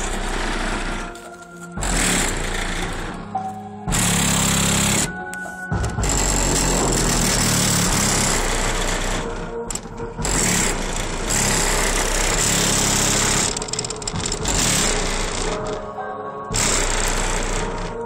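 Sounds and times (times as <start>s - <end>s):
distorted bass-heavy music: 0.0s - 18.0s.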